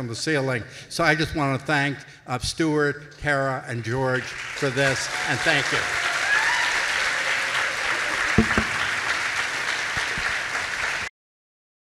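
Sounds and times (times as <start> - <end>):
audience applauding: 4.2 - 11.1
low thumps: 8.4 - 9.1.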